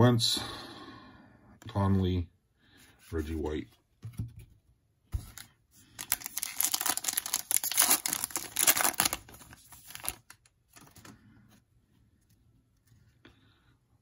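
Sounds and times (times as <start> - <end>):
foil wrapper tearing and crinkling: 6.0 - 10.5.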